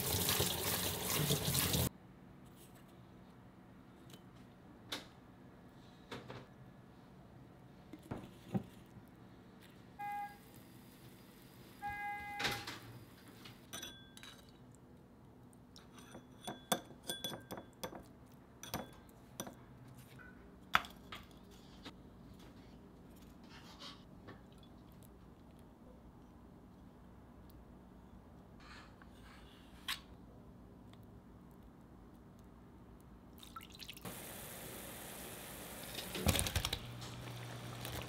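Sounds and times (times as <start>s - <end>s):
short electronic beeps: 10.0s - 10.4s, 11.8s - 12.5s
dishes and utensils clinking: 13.7s - 14.6s, 15.8s - 19.6s.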